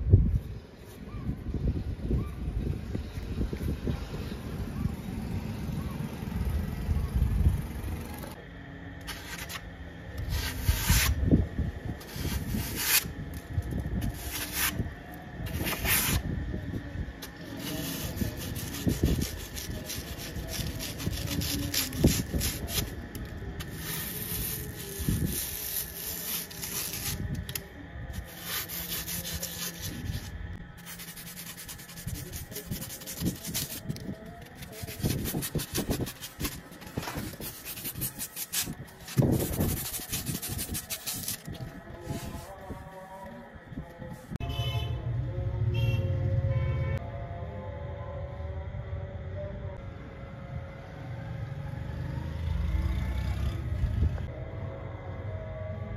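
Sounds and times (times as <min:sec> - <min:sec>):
hand sanding a hatchet: 0:10.3 - 0:11.2, 0:12.0 - 0:13.1, 0:14.0 - 0:14.8, 0:17.5 - 0:23.0, 0:23.6 - 0:27.4, 0:28.2 - 0:42.5.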